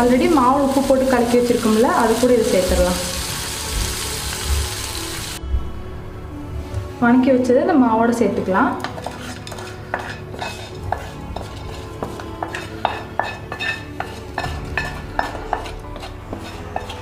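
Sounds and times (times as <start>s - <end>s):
wooden spatula scraping a pan: 8.8s - 17.0s.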